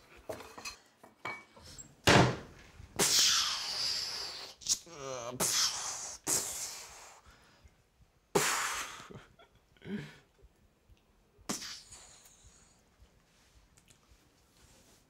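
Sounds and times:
man making hissing mouth noises: 3.0 - 7.3, 8.3 - 9.3, 11.4 - 12.9.

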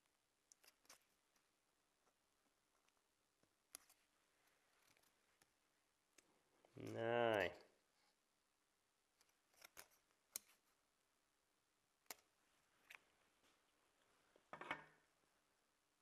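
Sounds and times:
scissors snipping thin metal: 9.5 - 10.6, 12.0 - 13.0.

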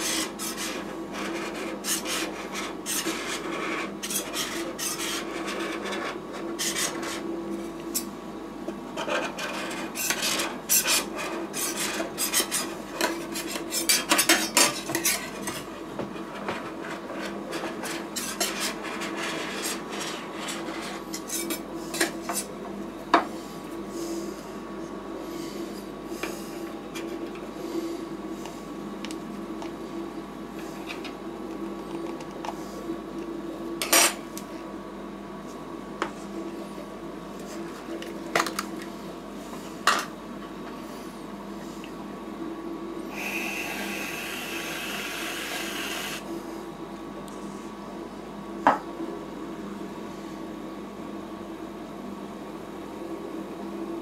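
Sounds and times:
spatulas scraping ice cream on metal: 0.0 - 7.2
steady machine hum: 0.0 - 54.0.

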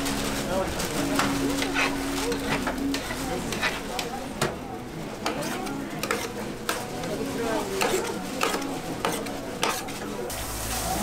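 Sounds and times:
batter sizzling: 0.0 - 4.4, 5.0 - 11.0
metal scraper on griddle: 1.6 - 4.1, 5.2 - 10.2.

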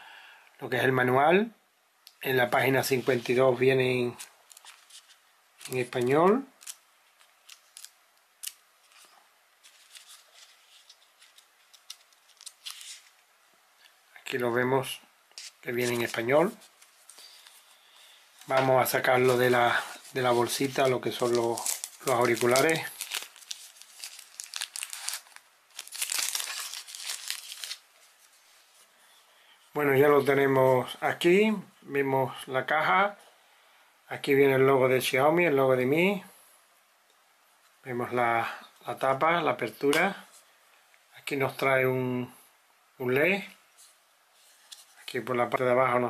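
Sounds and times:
paper pages rustling: 4.1 - 13.2, 15.3 - 28.9, 43.8 - 45.2
plastic bag crinkling: 4.1 - 13.2, 15.4 - 28.8.

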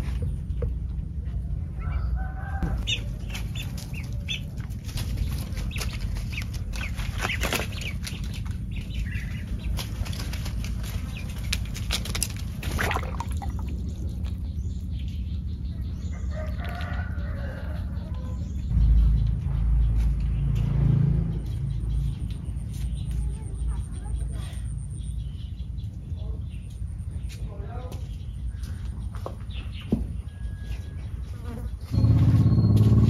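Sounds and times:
steady low rumble: 0.0 - 31.2
poultry calling: 1.7 - 11.7
rustling and clicking: 3.2 - 12.8.

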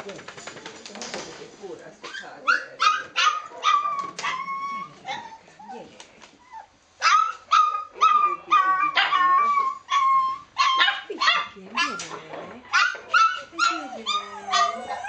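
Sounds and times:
dog whining yelps: 2.5 - 5.4, 6.6 - 11.0, 12.8 - 15.0.

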